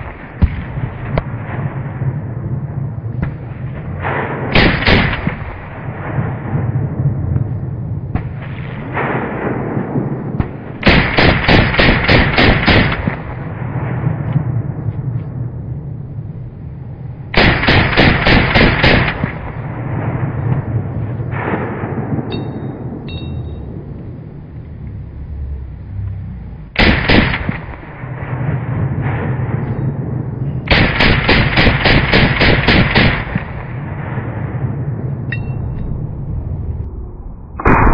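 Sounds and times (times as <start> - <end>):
rifle shots: 3.2 - 6.7, 8.1 - 14.4, 17.3 - 22.9, 26.8 - 30.0, 30.7 - 34.6
rifle firing full auto bursts: 10.8 - 13.2, 17.4 - 19.4, 26.8 - 27.5, 30.7 - 33.4.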